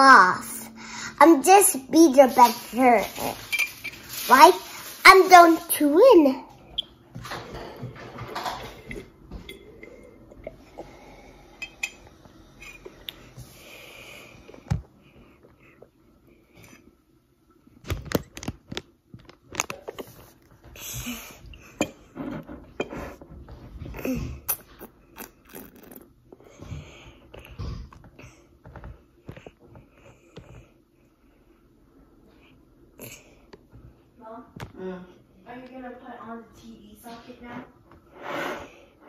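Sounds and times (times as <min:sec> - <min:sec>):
child chewing: 0:23.8 - 0:30.7
utensil scraping a dish: 0:38.1 - 0:38.9.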